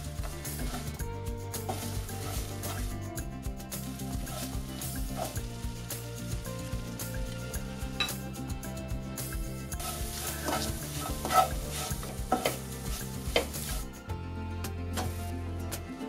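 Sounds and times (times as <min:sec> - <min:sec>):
light sizzle: 0:00.0 - 0:14.0
background music: 0:00.0 - 0:16.0
spatula scraping frying pan: 0:01.6 - 0:02.9, 0:03.8 - 0:05.5, 0:09.8 - 0:13.9.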